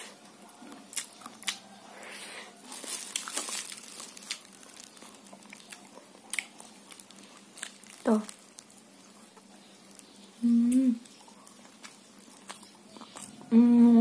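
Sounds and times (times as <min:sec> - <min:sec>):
plastic wrapping crinkling: 0:02.6 - 0:10.3.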